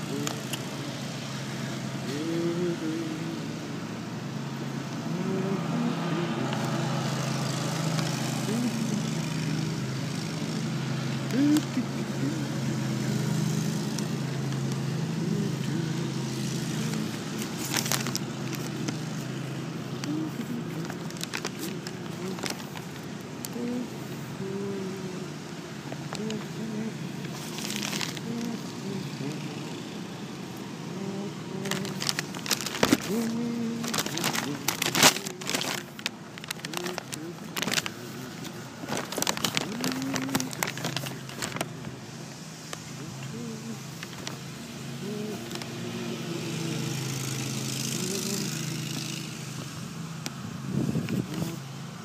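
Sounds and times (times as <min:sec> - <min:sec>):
low mechanical hum: 0:00.0 - 0:52.0
muffled background voices: 0:15.0 - 0:30.0
newspaper pages rustling: 0:16.4 - 0:23.6, 0:27.2 - 0:28.8, 0:31.6 - 0:42.0, 0:43.9 - 0:44.5.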